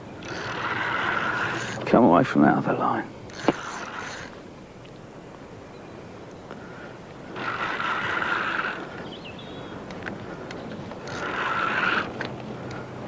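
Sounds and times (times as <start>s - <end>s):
fishing reel whirring: 0.2s - 1.9s, 3.3s - 4.5s, 7.3s - 9.0s, 10.9s - 12.3s.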